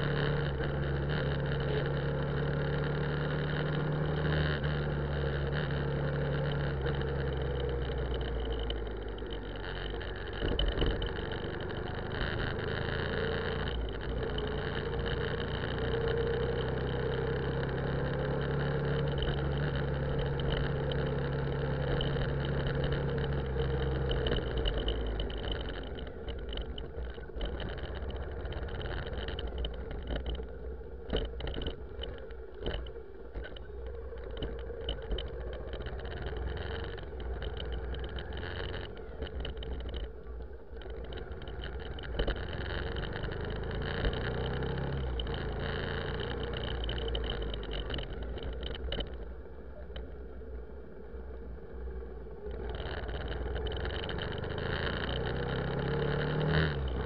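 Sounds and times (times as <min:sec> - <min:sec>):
car engine and road rumble: 0:00.0 - 0:57.0.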